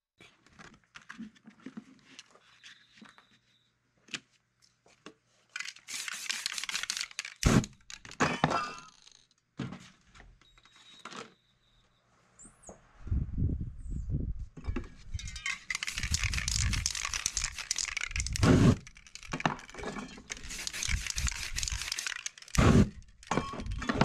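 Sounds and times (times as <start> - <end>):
crackle: 15.2 - 24.0
aerosol spray hissing: 20.5 - 22.9.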